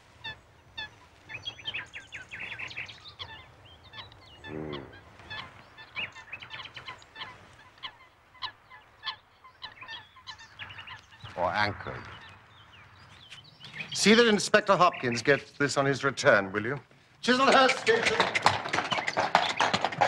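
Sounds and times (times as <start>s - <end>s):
birds chirping: 0.0s - 20.0s
low drawn-out bird call: 0.2s - 14.1s.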